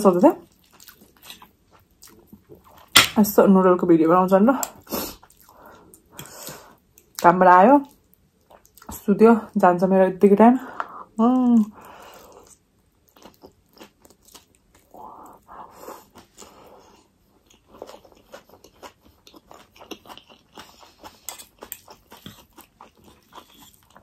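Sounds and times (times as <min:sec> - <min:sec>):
chewing noodles: 0:00.4 - 0:02.9, 0:11.8 - 0:24.0.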